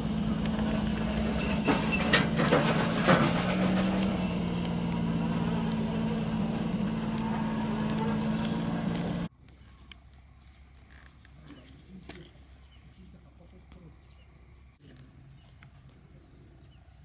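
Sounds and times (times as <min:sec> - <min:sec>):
engine running: 0:00.0 - 0:09.3.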